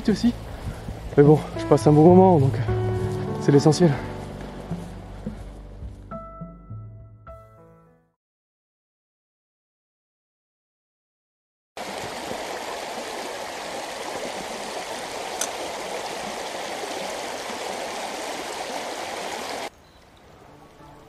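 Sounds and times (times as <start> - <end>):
stream babbling over stones: 11.8 - 19.7.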